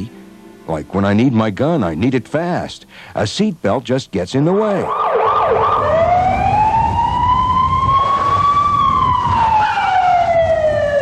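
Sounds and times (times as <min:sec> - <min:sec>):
police siren yelping and wailing: 0:04.8 - 0:11.0.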